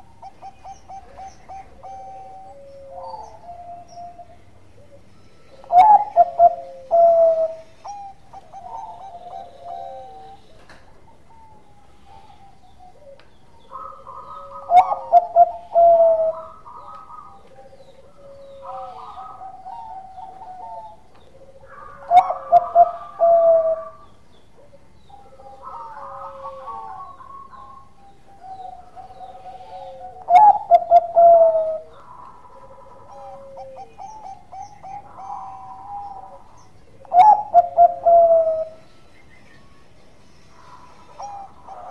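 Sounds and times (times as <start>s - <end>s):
soft dove cooing: 0.0s - 39.0s, 40.4s - 41.9s
dove stuttering coos: 13.7s - 24.0s, 28.7s - 38.8s.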